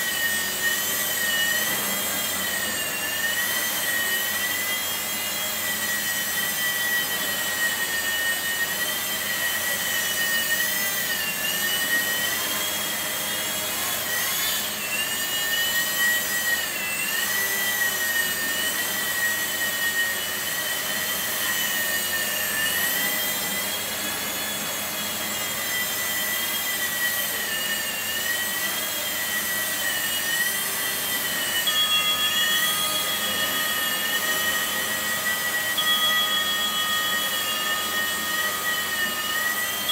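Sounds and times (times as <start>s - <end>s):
toy helicopter motors whining: 0.0s - 39.9s
steady high tone: 18.0s - 39.9s.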